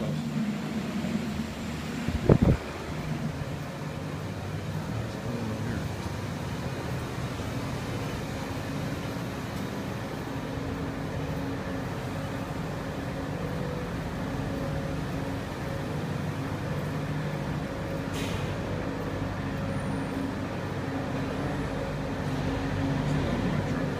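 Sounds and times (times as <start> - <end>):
rumbling noise: 0.0 - 3.6
low mechanical hum: 0.0 - 23.9.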